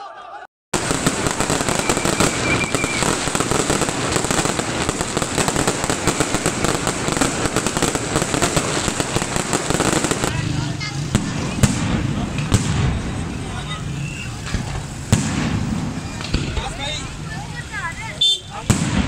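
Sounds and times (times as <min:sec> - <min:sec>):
high firework whistle: 0:00.8 - 0:08.2, 0:13.6 - 0:14.8
fireworks crackling and popping: 0:00.8 - 0:19.0.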